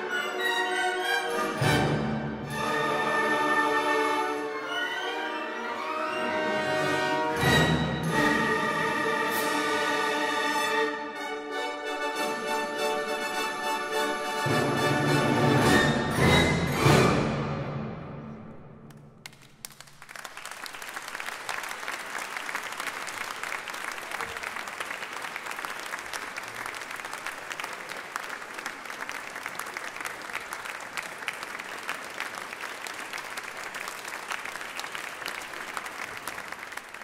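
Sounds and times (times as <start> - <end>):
audience applauding: 18.9 - 37.0.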